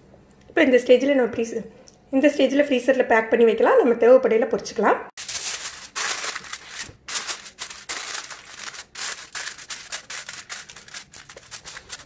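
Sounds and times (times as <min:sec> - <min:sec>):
aluminium foil crinkling: 0:05.2 - 0:12.0.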